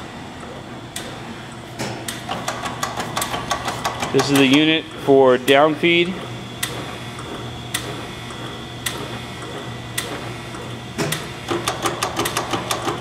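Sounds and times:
feed mechanism clicks: 1.8 - 4.8, 8.8 - 13.0.

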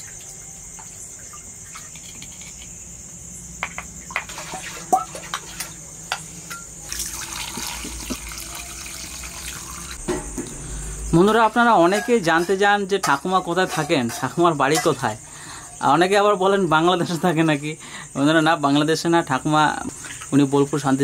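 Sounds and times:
crickets chirping: 0.0 - 21.0
water pouring into steel bowl: 6.8 - 10.0.

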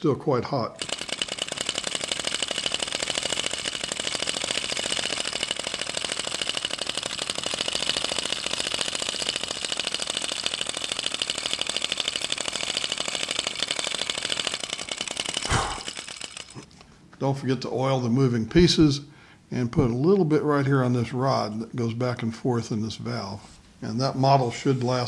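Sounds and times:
model engine ticking clatter: 0.8 - 16.7.

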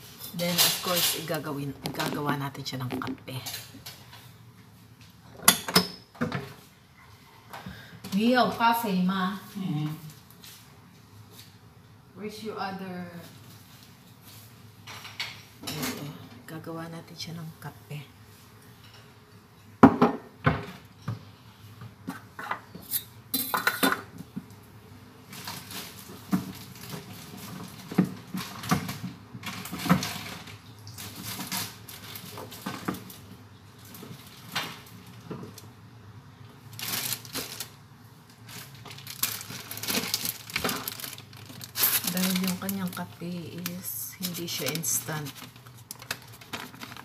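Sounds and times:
plastic bag rustling: 0.2 - 4.2, 25.2 - 35.6, 36.6 - 47.0.

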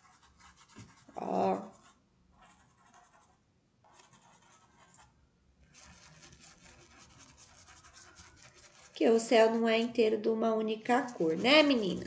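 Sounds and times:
paintbrush swishing on fabric: 5.7 - 9.8, 10.9 - 12.0.

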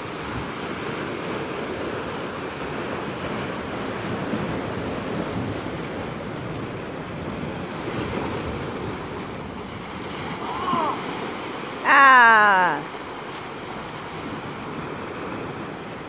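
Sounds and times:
wind on microphone: 0.0 - 12.8
surf washing over rocks: 0.0 - 16.0.

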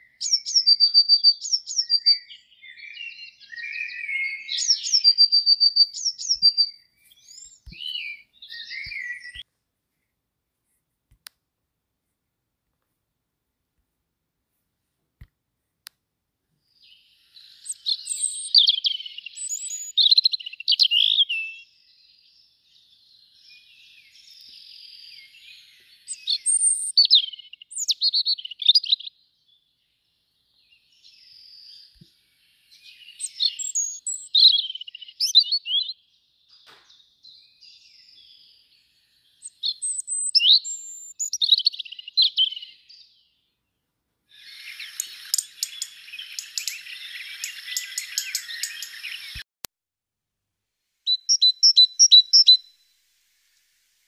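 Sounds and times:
songbird singing: 0.0 - 9.5, 16.6 - 49.5, 51.0 - 54.0
hissing sound with rapid ticks: 44.4 - 49.4, 52.9 - 54.0.

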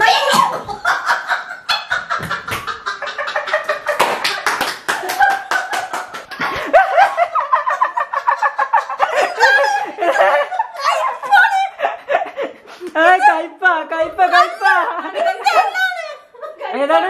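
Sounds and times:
people laughing hard: 0.0 - 13.5, 14.2 - 17.0
woman shrieking with laughter: 9.0 - 11.9, 14.3 - 16.3.

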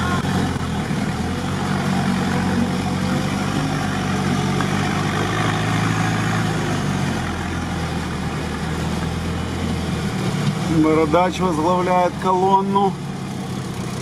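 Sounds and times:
vehicle engine at low revs: 0.0 - 14.0.

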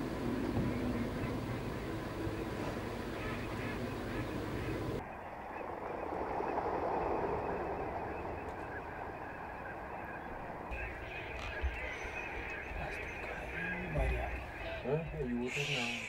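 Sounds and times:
flock of ducks calling: 0.5 - 5.6, 8.3 - 16.0.

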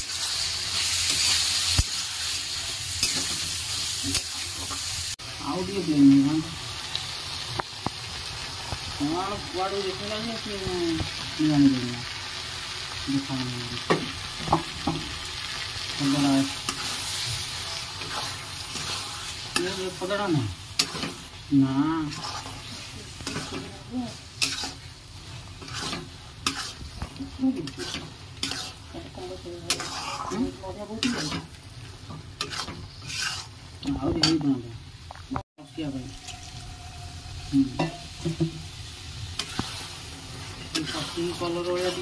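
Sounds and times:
curry sizzling: 0.0 - 42.0
metal spatula scraping pan: 16.0 - 34.5, 36.0 - 38.5, 39.3 - 42.0.

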